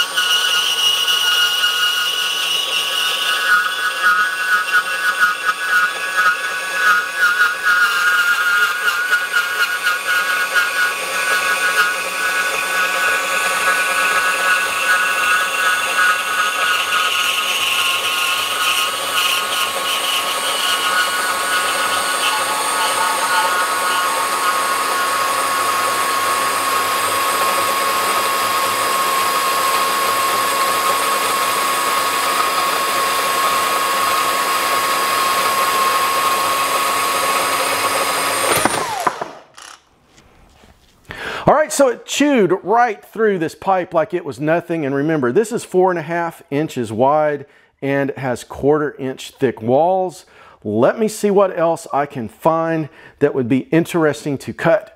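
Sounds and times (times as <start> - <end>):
band saw cutting steel pipe: 0.0 - 39.8.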